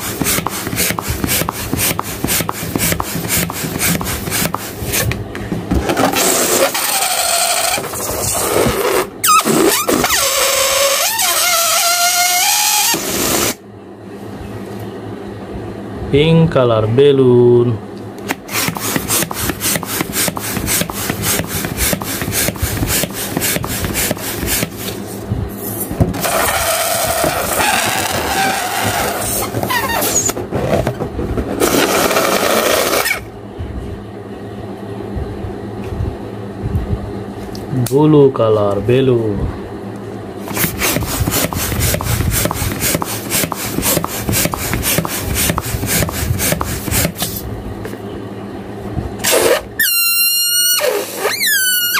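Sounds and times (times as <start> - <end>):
balloon deflating with squealing whine: 6.0 - 13.6, 18.5 - 24.8, 25.7 - 30.9, 31.6 - 33.3, 40.5 - 47.3, 49.2 - 51.9.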